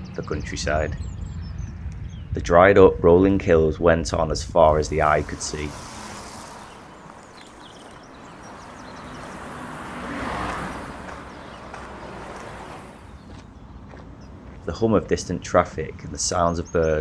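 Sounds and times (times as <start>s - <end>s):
hum of tyres on highway: 3.4s - 16.1s
vehicle passing: 4.5s - 14.7s.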